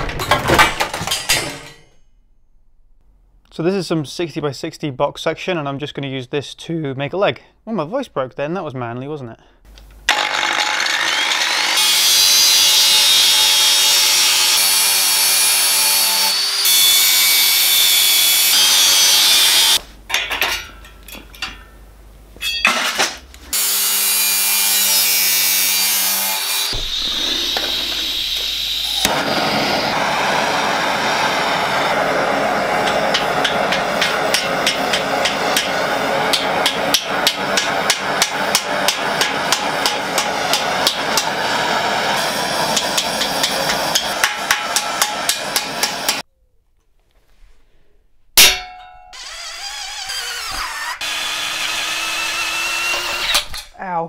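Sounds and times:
angle grinder cutting steel: 10.1 - 19.8, 22.4 - 46.2, 49.1 - 53.7
hammer striking steel: 22.4 - 23.2, 32.6 - 41.5, 42.2 - 46.2, 48.4 - 49.2
gas torch hissing: 26.7 - 46.2.

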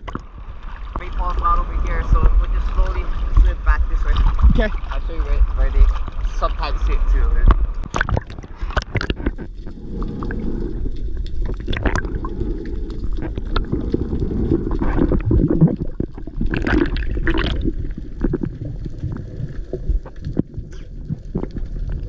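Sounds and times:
underwater clicks: 0.0 - 1.2, 7.4 - 22.0
muffled underwater rushing: 0.0 - 22.0.

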